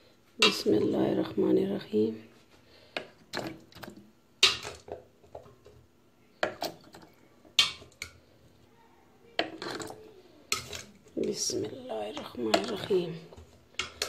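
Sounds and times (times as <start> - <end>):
dishes and utensils clinking: 9.4 - 11.0.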